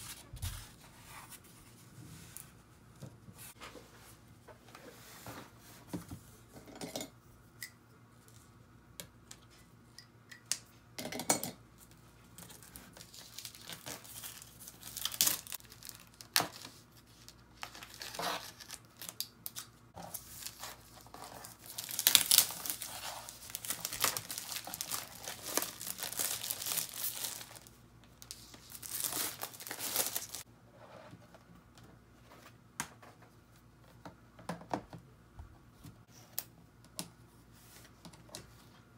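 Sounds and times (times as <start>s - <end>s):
plastic film crinkling: 12.5s - 30.4s.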